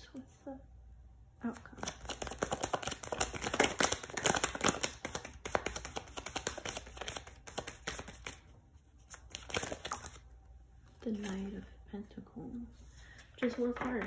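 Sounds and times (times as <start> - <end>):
cards being shuffled: 1.6 - 10.3.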